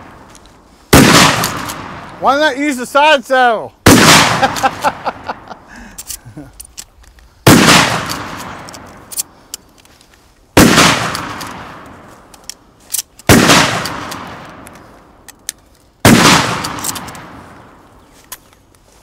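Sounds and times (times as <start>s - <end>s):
shotgun blasts with echo: 0.9s - 2.2s, 3.8s - 5.2s, 7.4s - 8.9s, 10.6s - 12.1s, 13.3s - 14.7s, 16.0s - 17.5s.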